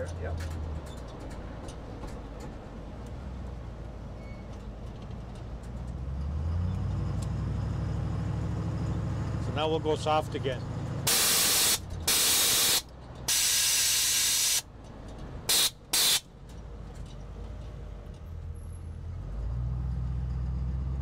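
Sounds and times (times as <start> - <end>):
truck engine rumble: 0.0 - 21.0
air hissing from suspension: 11.1 - 14.7, 15.5 - 16.3.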